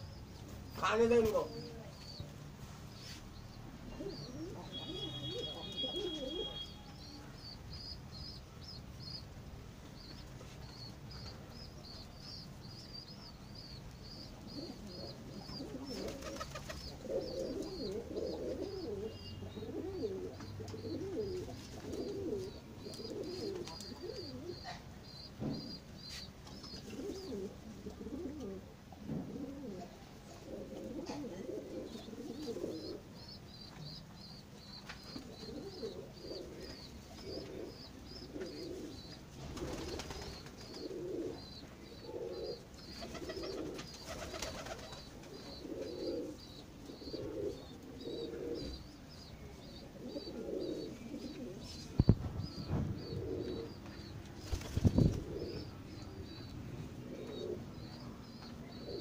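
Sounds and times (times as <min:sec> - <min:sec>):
pigeons cooing: 0:00.0 - 0:02.2, 0:03.6 - 0:08.7, 0:12.7 - 0:33.3, 0:34.6 - 0:59.0.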